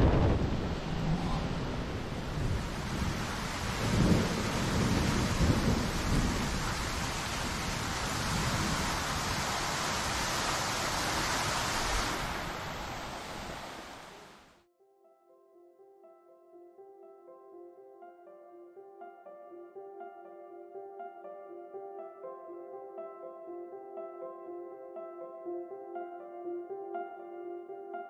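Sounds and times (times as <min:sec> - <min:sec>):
loud rushing noise with low rumble: 0:00.0 - 0:05.5
soft background music: 0:14.7 - 0:28.0.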